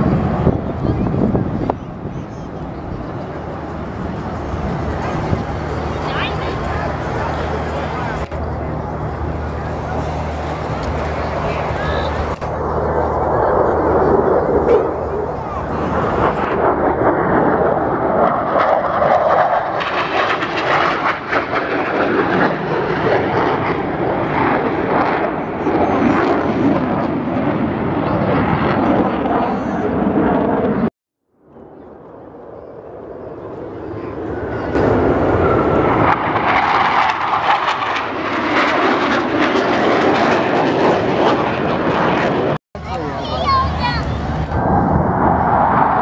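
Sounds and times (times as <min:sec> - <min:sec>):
jet engines roaring: 0:00.0 - 0:30.9, 0:31.5 - 0:46.0.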